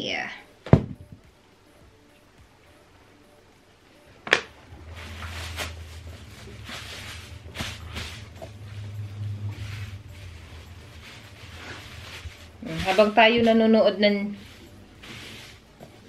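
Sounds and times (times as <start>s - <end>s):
plastic bags rustling: 4.8s - 16.0s.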